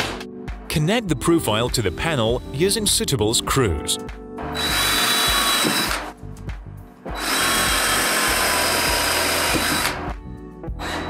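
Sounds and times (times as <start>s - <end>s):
cordless drill driving screws: 4.6s - 6.1s, 7.2s - 10.1s.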